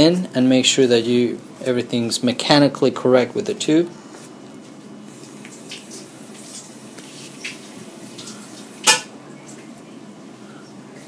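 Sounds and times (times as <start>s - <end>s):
low room noise: 0.0s - 11.0s.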